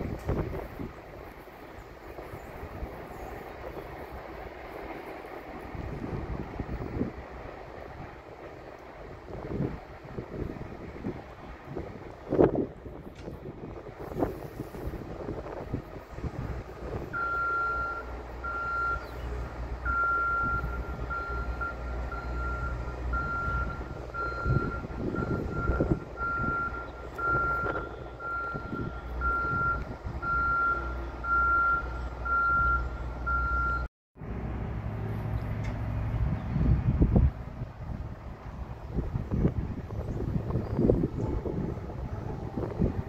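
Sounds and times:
low outdoor rumble: 0:00.0 - 0:43.0
backup alarm beeping: 0:17.2 - 0:19.1, 0:19.8 - 0:33.9.

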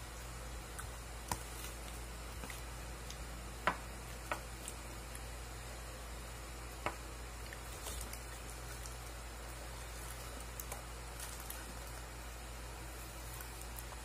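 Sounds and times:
steady low hum: 0:00.0 - 0:14.0
chewing clicks and smacks: 0:07.4 - 0:12.1.

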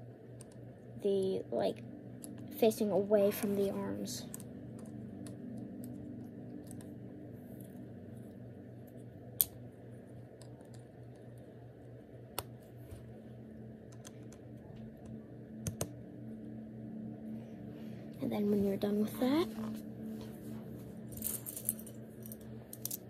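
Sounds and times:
steady low hum: 0:00.0 - 0:23.0
plastic pieces clicking and rattling: 0:21.2 - 0:23.0.

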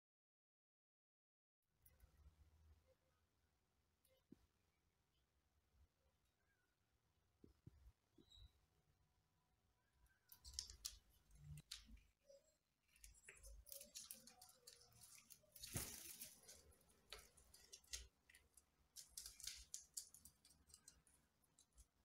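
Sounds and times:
bird rustling palm fronds: 0:13.0 - 0:20.9.

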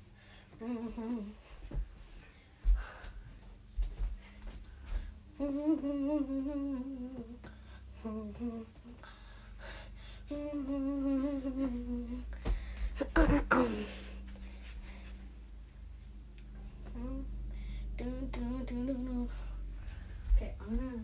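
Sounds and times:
girl humming: 0:00.6 - 0:01.4, 0:05.3 - 0:12.4, 0:13.0 - 0:14.2, 0:16.8 - 0:17.4.

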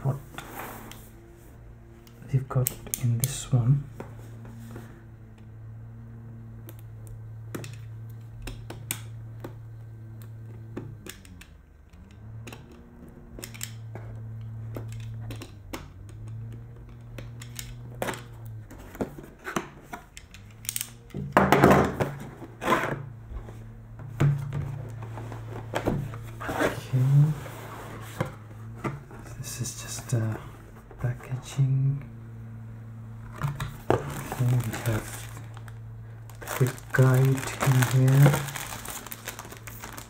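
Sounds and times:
low hum: 0:00.0 - 0:40.0
cardboard scraping and rustling: 0:22.0 - 0:23.7, 0:24.6 - 0:29.3, 0:33.3 - 0:35.7, 0:36.3 - 0:40.0.

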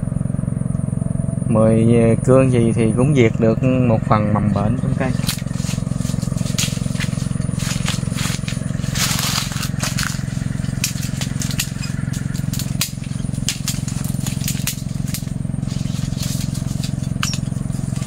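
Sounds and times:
low motor hum: 0:00.0 - 0:18.0
rustling crunch: 0:04.8 - 0:18.0
pruning shears clicking: 0:04.9 - 0:18.0
twigs crackling and snapping: 0:05.0 - 0:18.0.

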